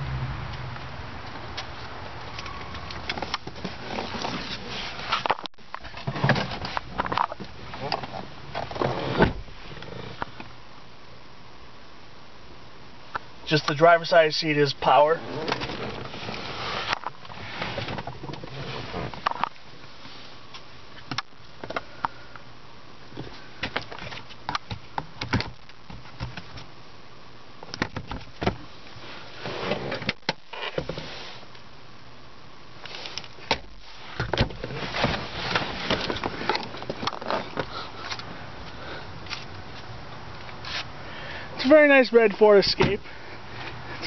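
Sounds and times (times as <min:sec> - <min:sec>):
rustling: 0:01.7 - 0:10.4, 0:32.8 - 0:38.3.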